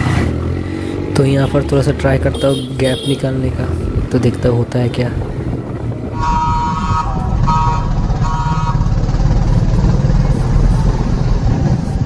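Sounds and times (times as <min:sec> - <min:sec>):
motorcycle engine and exhaust: 0:00.0 - 0:12.0
vehicle horn honking: 0:02.3 - 0:03.3, 0:06.1 - 0:08.9
wind rush: 0:03.5 - 0:12.0.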